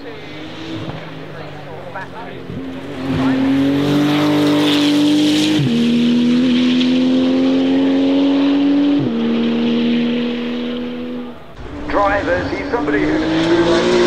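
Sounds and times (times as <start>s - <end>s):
sports car accelerating hard: 0.0s - 14.0s.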